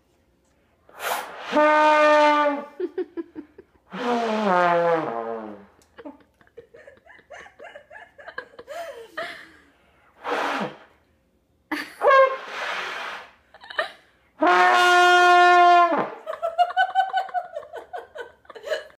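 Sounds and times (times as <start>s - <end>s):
trombone notes: 1.3s - 2.8s, 3.9s - 5.7s, 14.4s - 16.3s
people laughing: 2.8s - 3.8s, 5.9s - 9.6s, 16.2s - 19.0s.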